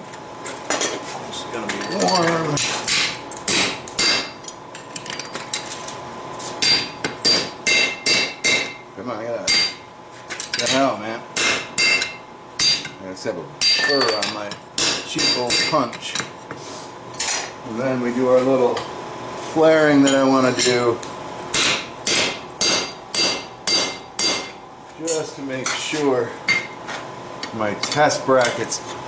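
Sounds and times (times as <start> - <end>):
hammer ringing on hot steel: 2.9 - 4.4, 6.6 - 8.8, 9.4 - 9.8, 11.4 - 13.0, 13.6 - 15.8, 21.5 - 25.3.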